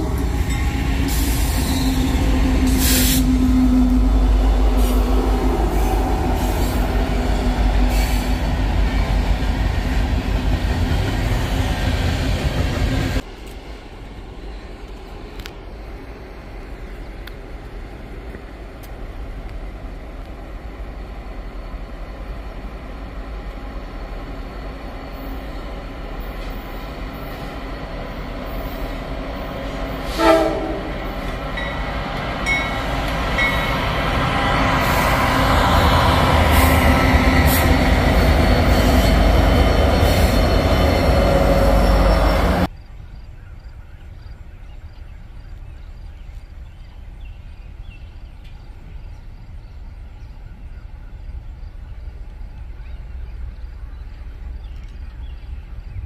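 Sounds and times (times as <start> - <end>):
freight train passing: 0.0 - 56.0
train horn blast: 30.0 - 31.3.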